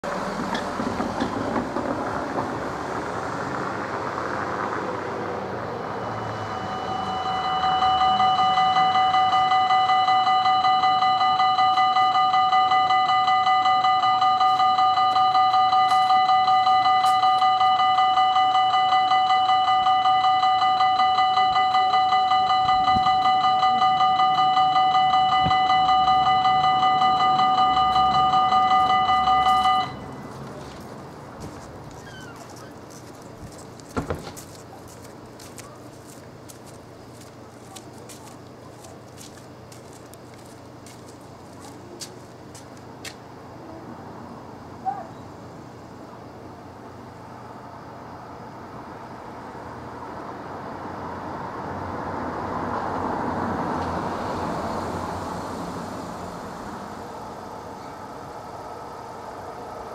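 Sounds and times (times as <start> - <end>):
car driving over brick road: 0.1 - 4.5, 33.3 - 34.8
level crossing warning bell: 5.7 - 31.2.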